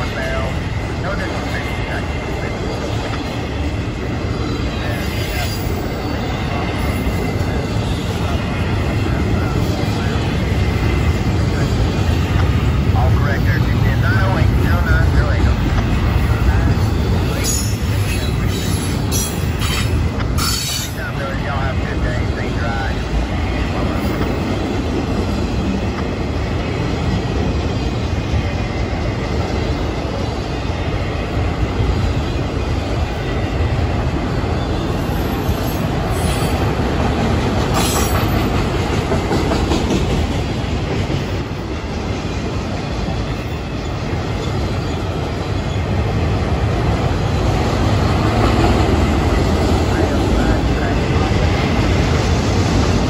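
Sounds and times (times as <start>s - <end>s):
train wheels rumbling and clattering: 0.0s - 53.0s
train wheel squeals: 16.5s - 21.0s, 34.6s - 36.6s, 37.7s - 38.5s.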